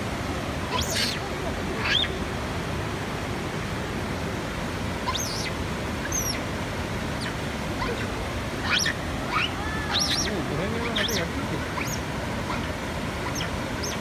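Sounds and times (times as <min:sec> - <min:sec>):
steady outdoor rushing noise: 0:00.0 - 0:14.0
short high chirping calls: 0:00.7 - 0:01.2, 0:01.8 - 0:02.2, 0:05.1 - 0:06.4, 0:07.2 - 0:14.0.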